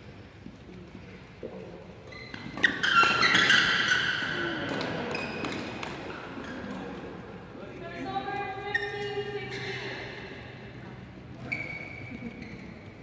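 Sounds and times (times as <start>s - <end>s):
sneakers squeaking on court: 2.1s - 7.0s, 8.6s - 10.6s, 11.3s - 13.0s.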